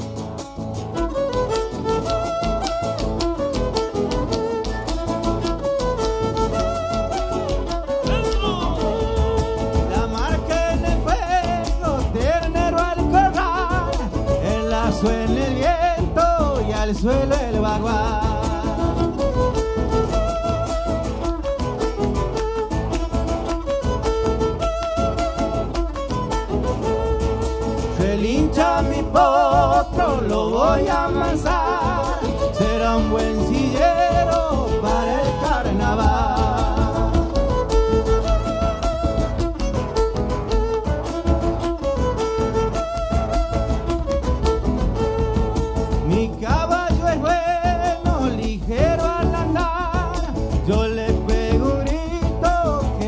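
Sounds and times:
live folk band music: 0:00.0 - 0:53.0
strummed guitar: 0:00.0 - 0:53.0
violin melody with vibrato: 0:00.0 - 0:53.0
drums keeping a steady beat: 0:27.9 - 0:53.0.

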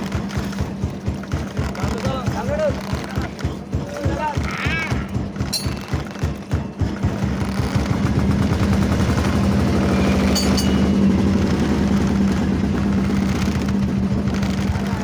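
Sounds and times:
diesel boat engine chugging: 0:00.0 - 0:15.0.

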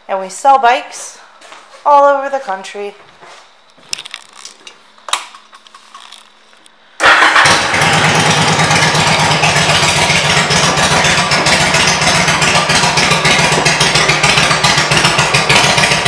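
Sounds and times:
motorcycle engine starting and idling: 0:07.0 - 0:16.0.

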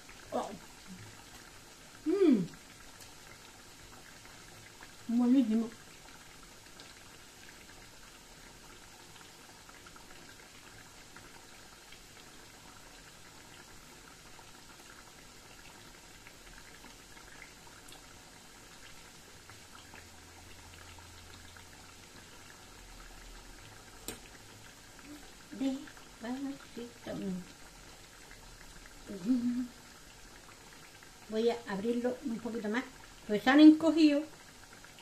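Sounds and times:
small crackles: 0:00.0 - 0:05.1, 0:23.5 - 0:31.4
dough frying in hot oil: 0:00.0 - 0:35.0.

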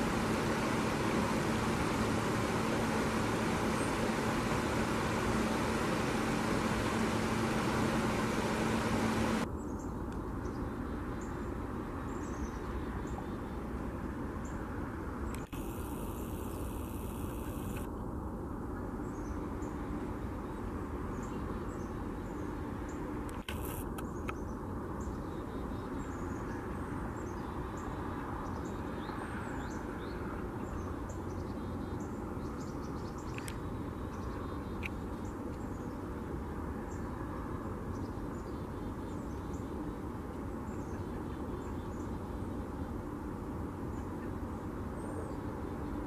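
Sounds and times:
low outdoor rumble: 0:00.0 - 0:27.9.

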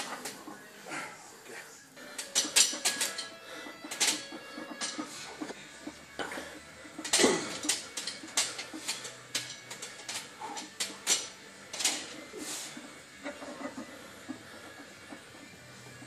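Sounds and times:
barbell plates clanking: 0:02.1 - 0:05.5.

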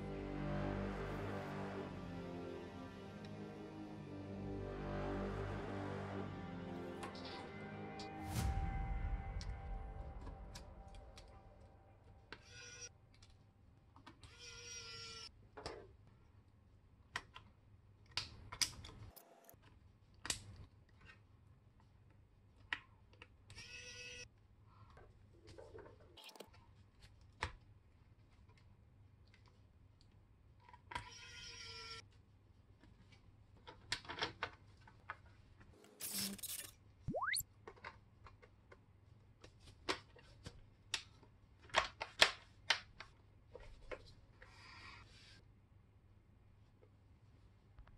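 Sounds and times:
quick rising whistle: 0:37.1 - 0:37.4.

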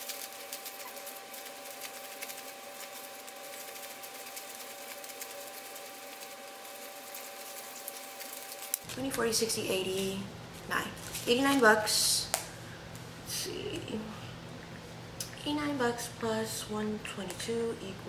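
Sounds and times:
paper bills rustling: 0:00.0 - 0:11.6
faint steady hum: 0:00.0 - 0:18.0.

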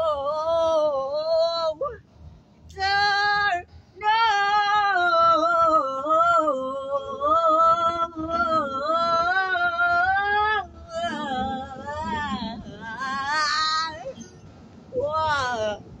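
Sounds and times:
man singing wordless notes: 0:02.7 - 0:14.2.

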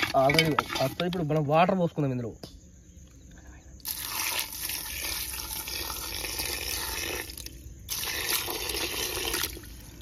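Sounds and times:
water pouring into a steel pot: 0:03.8 - 0:10.0.

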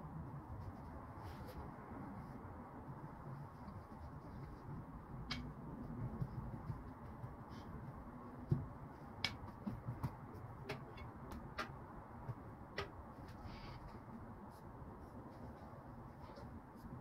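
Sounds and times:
low steady hum: 0:00.0 - 0:17.0
light clicks and taps: 0:05.2 - 0:13.4.

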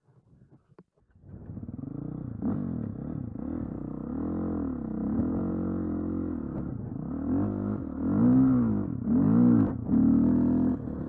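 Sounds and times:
dirt bike engine revving: 0:07.2 - 0:11.0.

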